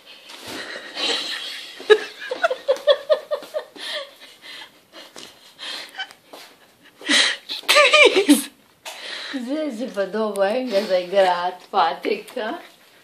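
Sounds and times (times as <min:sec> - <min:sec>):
person laughing: 0:00.5 - 0:04.4, 0:06.8 - 0:08.6.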